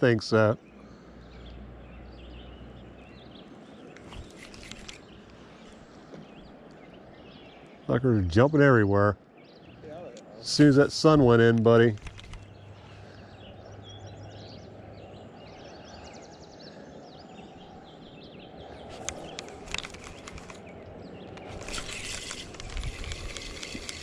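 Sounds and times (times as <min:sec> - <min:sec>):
rough rustling noise: 0:04.0 - 0:06.0, 0:11.7 - 0:12.5, 0:18.7 - 0:20.7, 0:21.3 - 0:24.0
sharp clicks: 0:11.5 - 0:12.5, 0:18.9 - 0:24.0.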